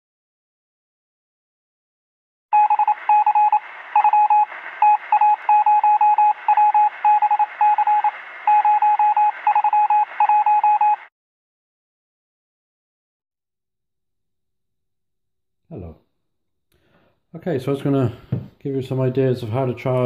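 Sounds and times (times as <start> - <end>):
morse code beeps: 2.5 - 11.1
radio hiss: 2.8 - 10.6.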